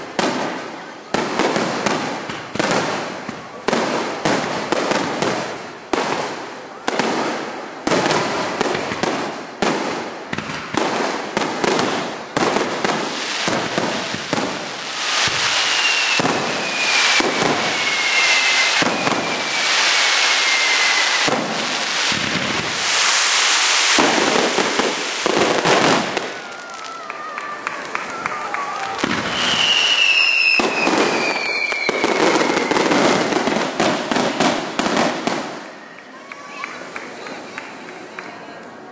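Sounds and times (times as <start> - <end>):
fireworks bursting: 0.0 - 38.3
falling whistle tones: 15.2 - 21.3, 26.4 - 33.2.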